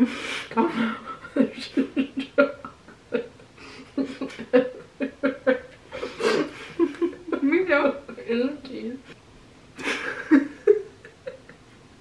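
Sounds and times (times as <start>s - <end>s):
women laughing with mouths full: 0.0s - 7.5s, 9.8s - 11.8s.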